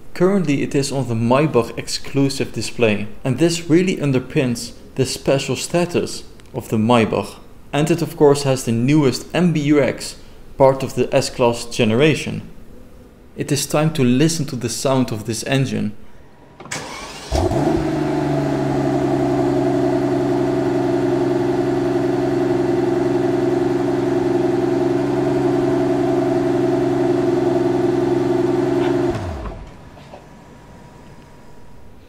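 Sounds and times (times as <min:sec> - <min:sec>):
car engine starting and idling: 0:16.6 - 0:32.0.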